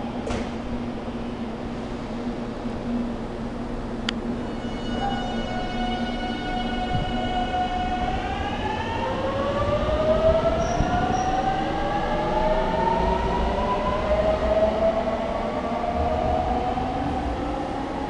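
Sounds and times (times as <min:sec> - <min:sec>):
wheels rumbling on rails: 0:06.8 - 0:18.0.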